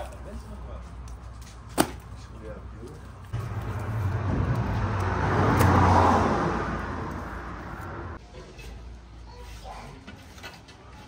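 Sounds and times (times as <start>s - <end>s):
vehicle passing by: 3.3s - 8.2s.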